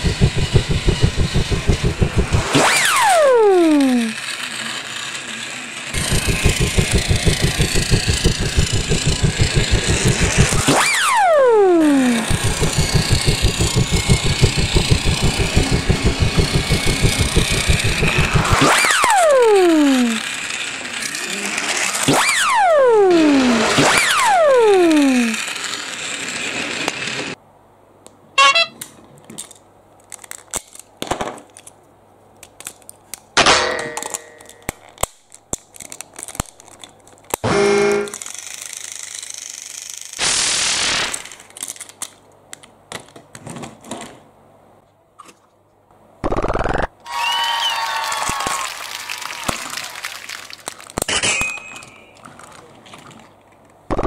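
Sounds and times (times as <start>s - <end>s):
falling sliding tones: 0.0s - 4.3s, 6.0s - 20.5s
plastic toy trains clicking: 0.0s - 22.2s, 23.0s - 27.3s, 28.8s - 31.8s, 32.4s - 33.4s, 34.2s - 37.4s, 38.0s - 40.2s, 41.0s - 44.2s, 49.2s - 54.0s
toy train motor rattling: 0.0s - 27.4s, 38.0s - 42.2s.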